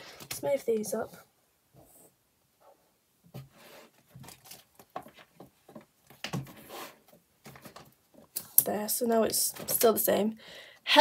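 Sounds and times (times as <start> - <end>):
plastic and paper rustling: 4.1 - 6.7.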